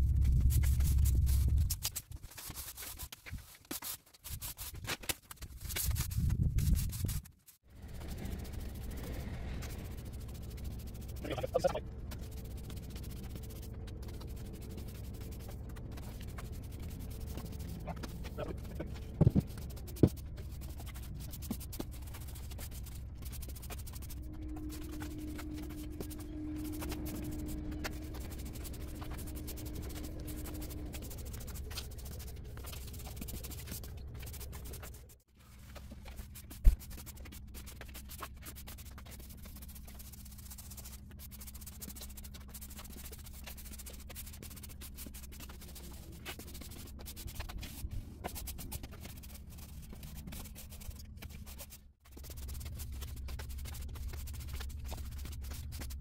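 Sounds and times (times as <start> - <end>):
faint steady hum: 7.9 - 35.0.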